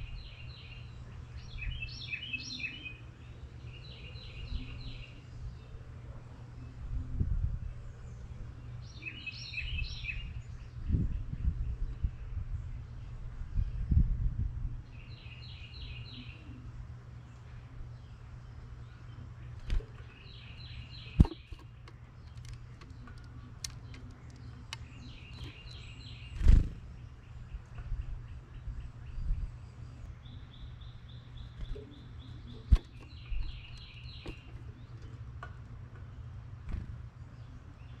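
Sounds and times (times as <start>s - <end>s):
small birds chirping: 0.0s - 38.0s
steady low hum: 0.0s - 38.0s.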